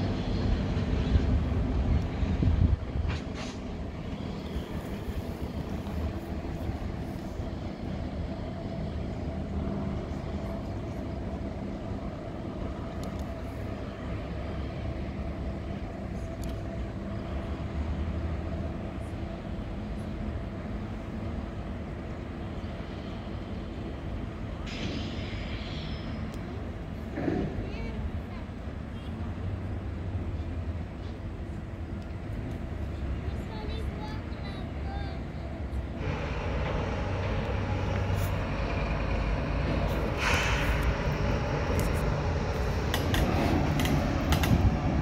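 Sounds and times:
distant freight train rumbling: 0.0 - 45.0.

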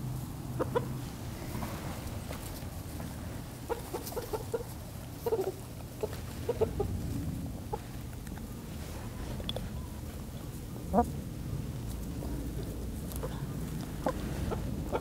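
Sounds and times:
chickens clucking: 0.0 - 8.6, 12.2 - 15.0.

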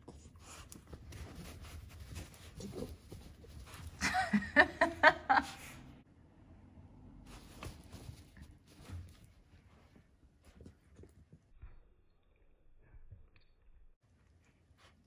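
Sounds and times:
dogs rustling in bedding: 7.3 - 10.8.

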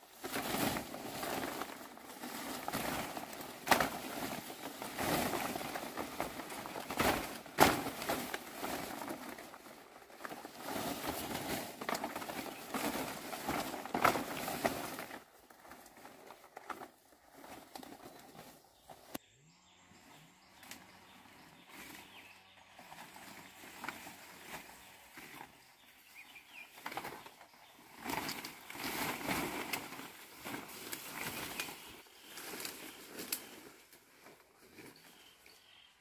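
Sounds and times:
leaves rustling: 0.0 - 19.2, 20.2 - 35.9.

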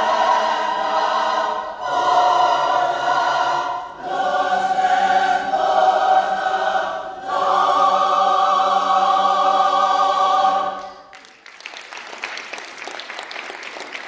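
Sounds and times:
choir singing sustained chord: 0.0 - 11.1
audience applauding: 10.8 - 14.0.

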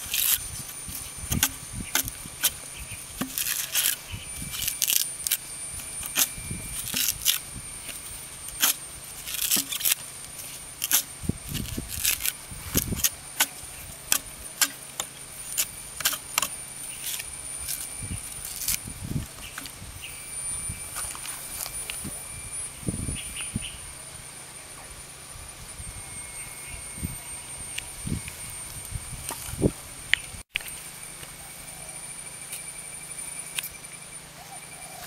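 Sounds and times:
coconut husk cracking and ripping: 0.0 - 18.8.

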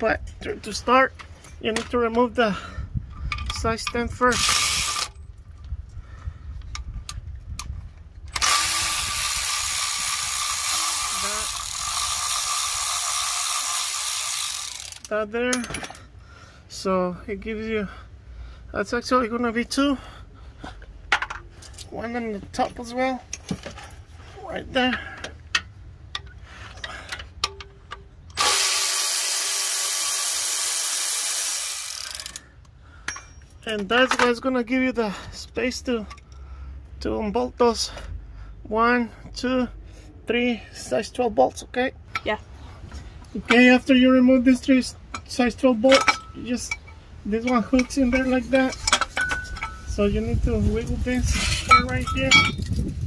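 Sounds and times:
cordless power tool whine: 8.4 - 15.0, 28.4 - 32.4.

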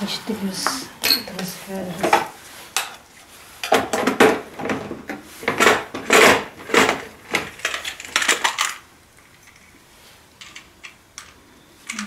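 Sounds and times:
hard objects clattering: 3.6 - 9.8.

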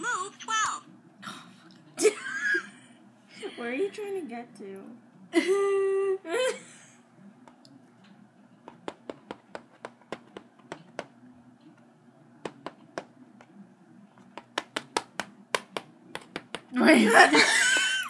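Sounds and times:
game piece tapping on plastic board: 8.6 - 11.2, 12.4 - 13.5, 14.2 - 16.7.

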